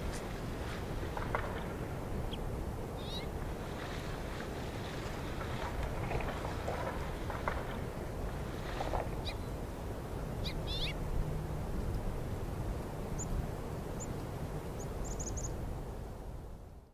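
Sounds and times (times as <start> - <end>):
rustle of branches: 0.0 - 16.5
wind rumbling on microphone: 0.0 - 16.9
small birds chirping: 3.0 - 3.3, 9.2 - 9.5, 10.4 - 11.0, 13.1 - 15.6.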